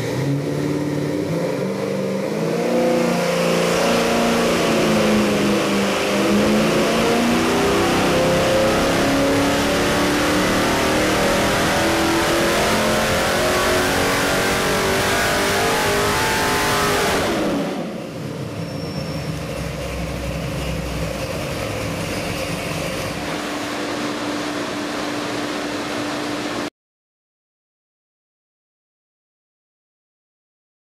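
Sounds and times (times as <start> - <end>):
engine revving at full throttle: 0.0 - 18.2, 19.6 - 26.7
engine idling: 17.8 - 26.6.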